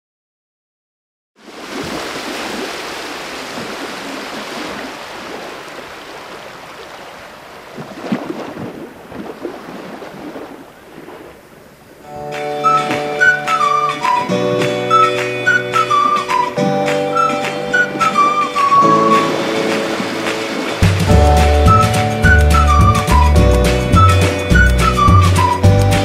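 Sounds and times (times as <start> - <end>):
sea waves washing: 1.4 - 26.0
music: 12.1 - 26.0.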